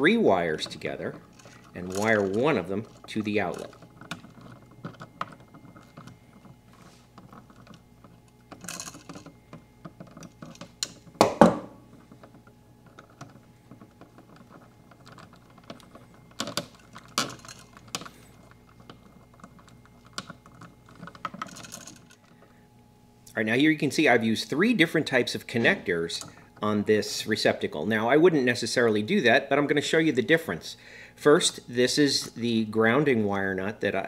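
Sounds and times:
wires clicking and scraping: 0.0 - 27.8
loud knock: 11.2 - 11.8.

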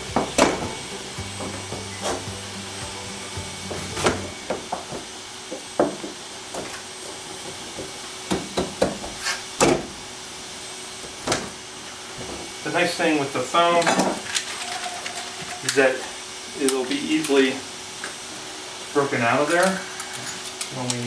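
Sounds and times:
background music: 0.0 - 4.5.

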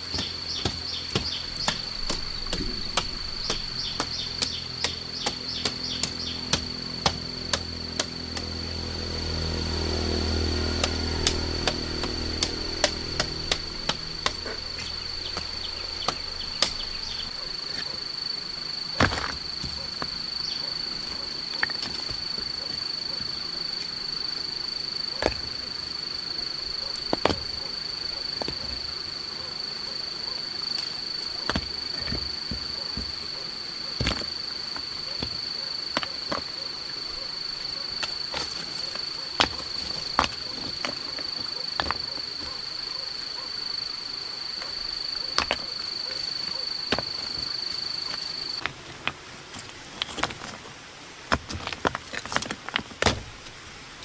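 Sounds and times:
rocks knocking together: 0.0 - 8.5, 10.8 - 17.9, 19.0 - 20.2, 20.9 - 22.9, 27.0 - 27.6, 31.3 - 33.2, 34.0 - 36.5, 38.0 - 42.6, 45.2 - 53.6
high-pitched insect drone: 0.0 - 48.7.

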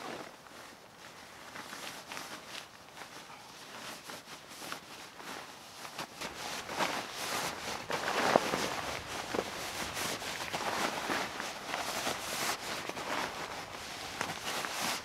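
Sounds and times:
nylon fabric rustling and swishing: 0.0 - 15.0.

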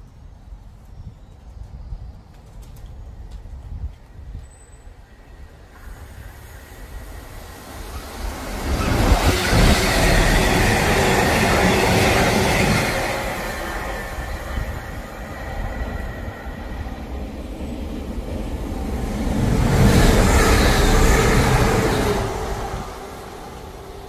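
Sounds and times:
train wheels on rails: 1.4 - 24.0
another train passing: 3.2 - 24.0
diesel locomotive engine: 4.2 - 24.0.

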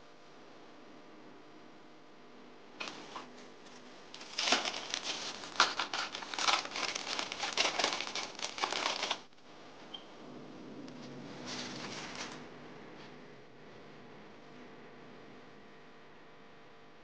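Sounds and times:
wrapping sheet crinkling: 3.7 - 9.3, 11.4 - 12.4.

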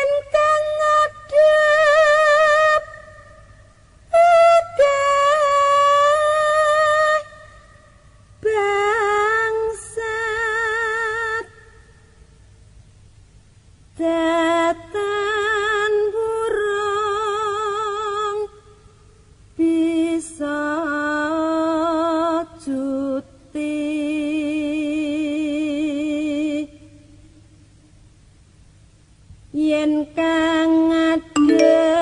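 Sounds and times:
woman singing unaccompanied: 0.0 - 3.4, 4.1 - 7.5, 8.4 - 11.7, 14.0 - 18.6, 19.6 - 27.0, 29.5 - 32.0.

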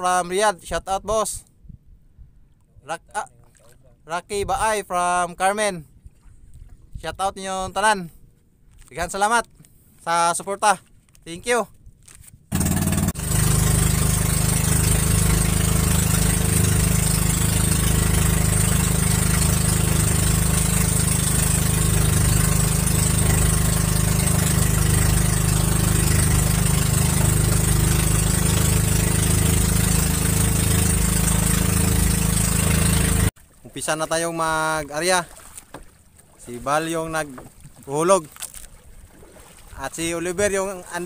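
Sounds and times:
boat engine droning: 12.5 - 33.8.

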